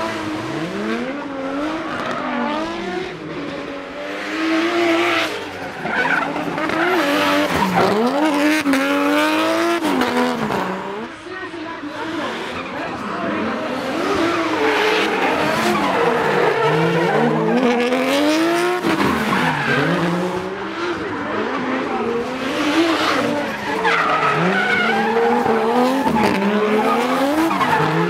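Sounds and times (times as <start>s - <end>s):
car engine revving hard: 0.0s - 11.1s, 11.9s - 28.0s.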